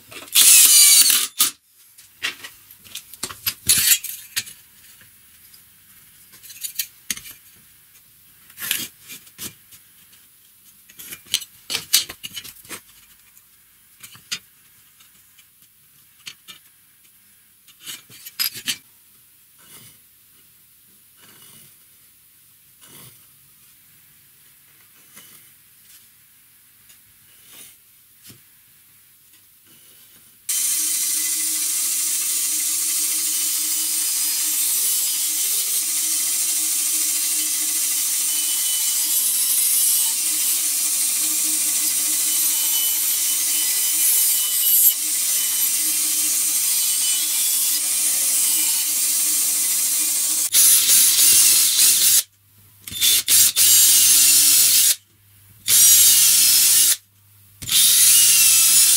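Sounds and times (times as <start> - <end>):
band saw cutting wood: 0.3 - 1.5, 30.5 - 52.2, 57.6 - 58.9
power drill boring wood: 0.3 - 1.5, 30.5 - 52.2, 52.9 - 55.0, 55.7 - 57.0, 57.6 - 58.9.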